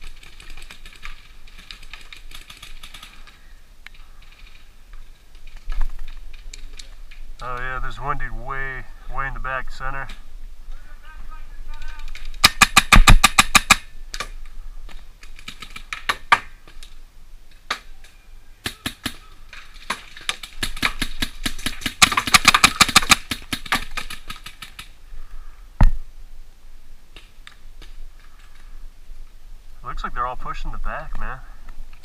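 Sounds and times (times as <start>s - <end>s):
paintball marker firing: 12.4s - 14.4s, 20.6s - 24.0s.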